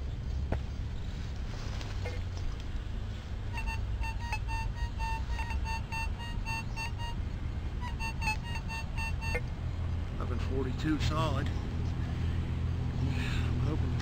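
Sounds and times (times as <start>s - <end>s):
metal detector beeps: 3.6s - 7.2s, 7.8s - 9.4s.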